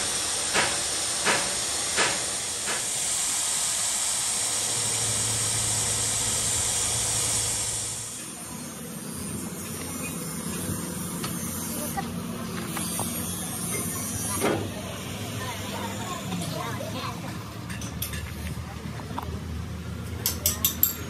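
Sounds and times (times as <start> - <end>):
grinder grinding steel hiss: 0.0 - 17.0
low hum: 4.2 - 11.2.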